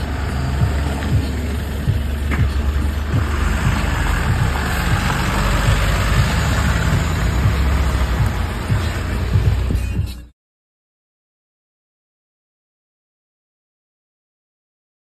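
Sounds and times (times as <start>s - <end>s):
truck diesel engine running: 0.0s - 10.3s.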